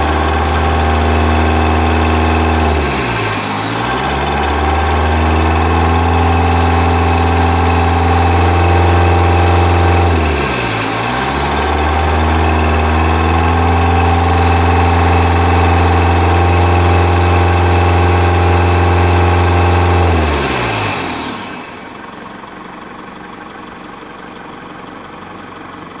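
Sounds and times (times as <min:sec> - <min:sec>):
diesel engine idling: 0:00.0 - 0:26.0.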